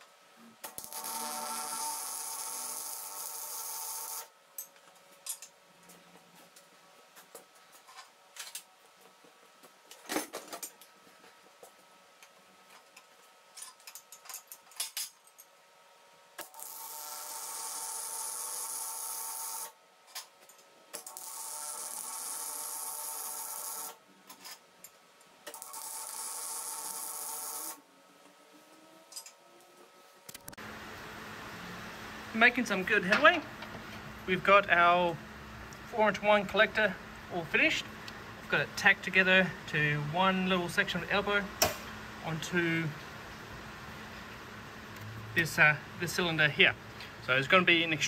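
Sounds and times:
welding arc sizzling: 0.6s - 4.3s, 16.4s - 19.8s, 20.9s - 24.0s, 25.5s - 27.8s
clicks and knocks of tools: 4.6s - 11.0s, 11.6s - 15.5s, 29.1s - 29.4s.

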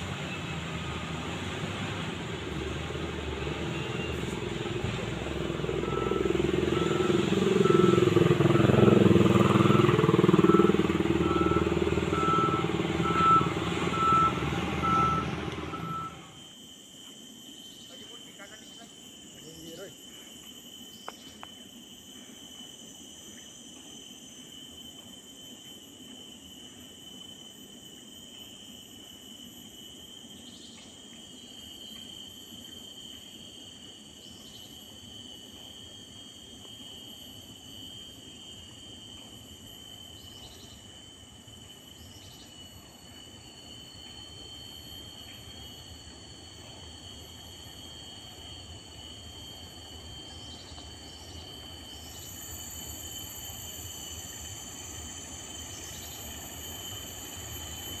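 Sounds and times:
insect chirps: 0.0s - 58.0s
insects holding high tones: 3.1s - 16.6s, 47.1s - 58.0s.

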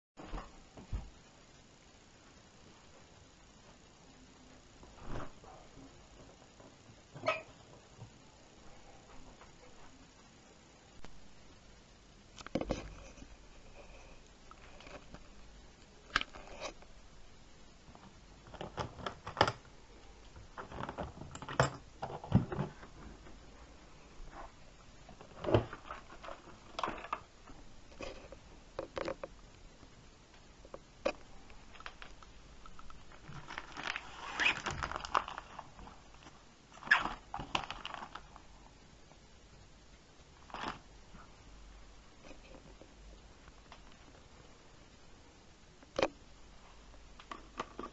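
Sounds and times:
rustling: 19.9s - 38.9s, 40.2s - 44.7s.

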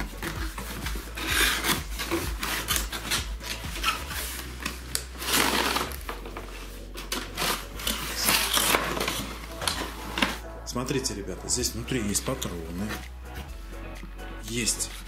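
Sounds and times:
cardboard scraping on cardboard: 0.0s - 10.4s.

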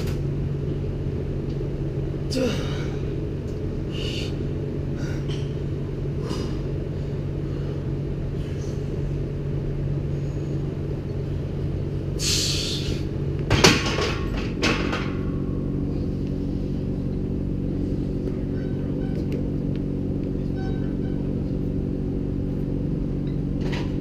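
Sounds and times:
low room hum: 0.0s - 24.0s.

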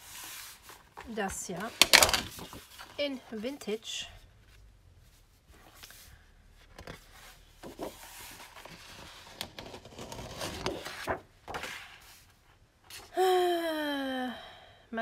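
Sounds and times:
paper rustling and sliding: 0.0s - 3.0s, 4.5s - 13.1s
paper flaps: 0.1s - 3.0s, 6.8s - 12.0s.

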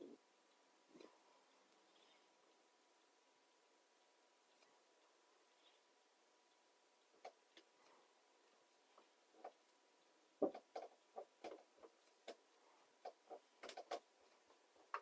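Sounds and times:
small clicks and taps: 6.5s - 8.0s, 8.8s - 15.0s.

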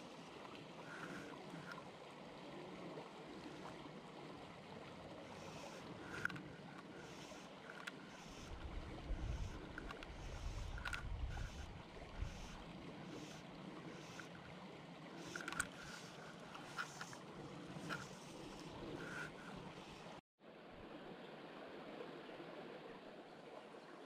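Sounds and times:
stream running over gravel: 0.0s - 20.2s
wind buffeting microphone: 8.4s - 12.6s.

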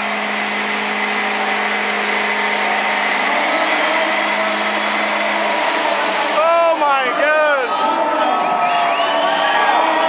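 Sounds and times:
truck engine revving with tyres spinning: 0.0s - 7.3s
crowd whooping: 0.0s - 10.0s.

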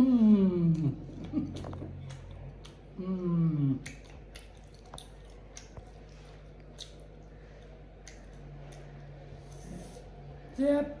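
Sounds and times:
slurping and chewing: 3.6s - 10.2s.

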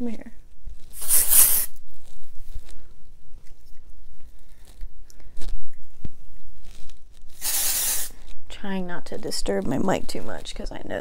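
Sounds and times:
fingers rustling through hair: 0.0s - 11.0s
fingers brushing microphone: 0.7s - 11.0s
aerosol hairspray hiss: 0.9s - 1.8s, 7.4s - 8.2s.

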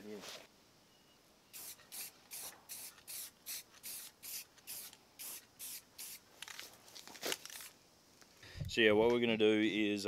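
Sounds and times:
spray paint can hissing: 1.5s - 6.5s.

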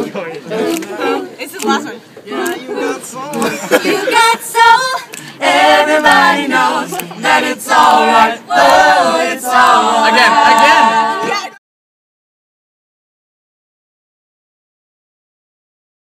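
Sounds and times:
voices singing a cappella: 0.0s - 11.6s.

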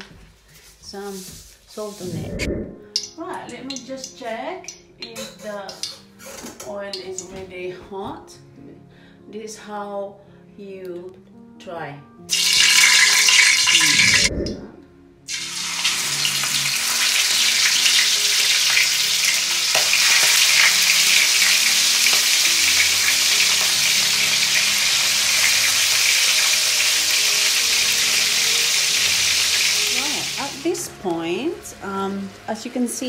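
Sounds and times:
chicken sizzling in hot oil: 12.3s - 14.3s, 15.3s - 30.9s.

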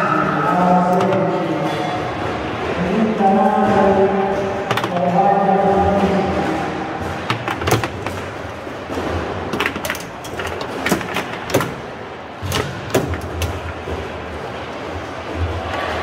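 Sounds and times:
foosball ball knocks and clacks: 3.7s - 14.2s.

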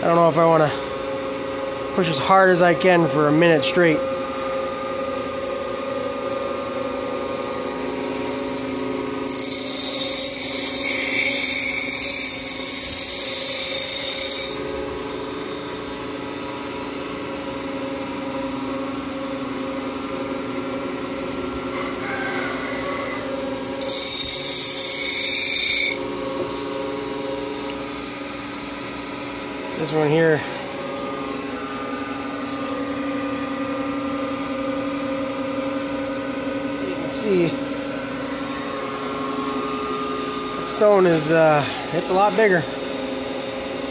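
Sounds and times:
grinder motor hum: 8.1s - 15.3s, 23.3s - 43.5s
steel grinding on stone wheel: 9.3s - 14.6s, 23.8s - 26.0s.

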